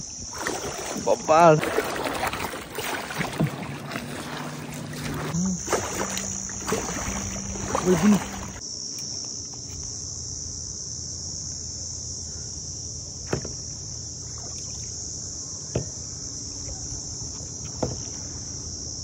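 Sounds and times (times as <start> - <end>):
kayak paddle splashing: 0.0 - 8.6, 13.2 - 15.0
high-pitched insect chorus: 0.0 - 19.0.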